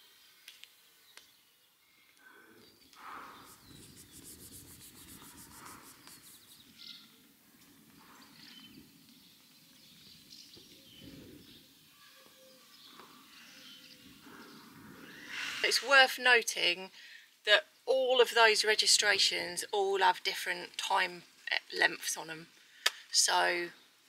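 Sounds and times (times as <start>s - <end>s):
birds chirping: 2.6s - 7.2s
soft rustle: 3.0s - 9.9s.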